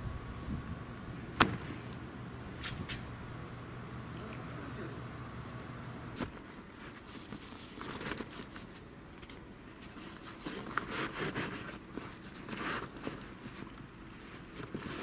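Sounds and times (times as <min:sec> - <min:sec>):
tissues rustling: 0:06.2 - 0:15.0.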